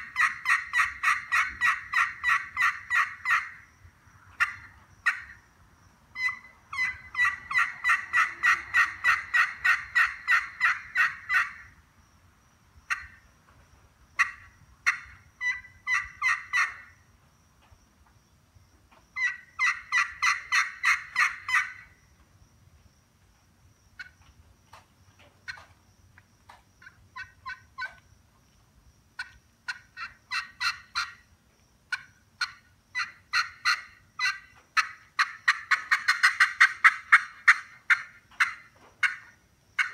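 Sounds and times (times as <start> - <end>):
turkey pot call yelping: 0.0 - 3.6, 4.3 - 5.4, 6.2 - 11.7, 12.9 - 13.2, 14.2 - 16.9, 19.2 - 21.9, 26.8 - 28.0, 29.2 - 31.3, 31.9 - 39.9.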